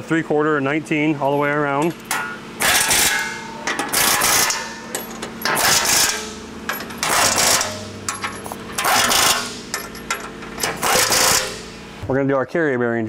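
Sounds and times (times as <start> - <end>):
impact wrench rattling bursts: 2.0 - 11.9.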